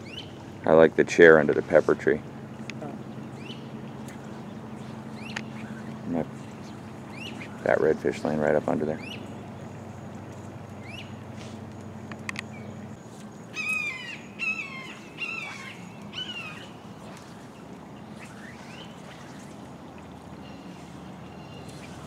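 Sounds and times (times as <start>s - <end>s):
birds chirping: 0.0s - 22.0s
harsh bird calls: 2.2s - 11.7s, 12.4s - 22.0s
sharp clicks: 11.7s - 12.5s.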